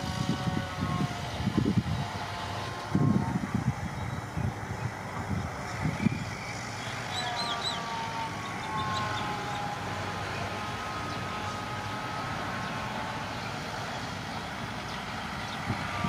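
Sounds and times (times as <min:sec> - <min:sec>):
distant bulldozer diesel engine: 0:00.0 - 0:16.0
faint wavering whine: 0:00.0 - 0:16.0.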